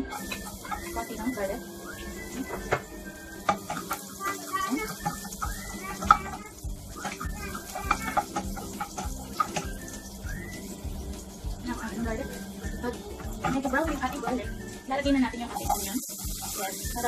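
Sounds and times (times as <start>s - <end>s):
rising and falling calls: 0.0s - 12.9s
garlic frying in oil: 0.0s - 17.0s
spatula knocking against metal pot: 7.0s - 9.8s.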